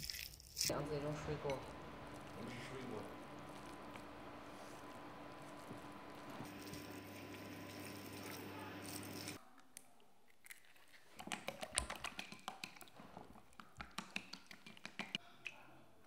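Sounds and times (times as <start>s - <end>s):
faint steady hiss: 0.7s - 9.4s.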